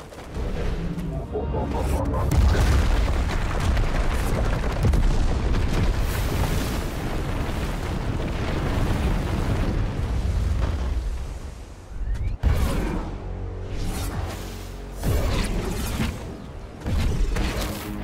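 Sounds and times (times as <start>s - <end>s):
deep rumble: 0.3s - 11.4s
rush of flying debris: 2.4s - 11.8s.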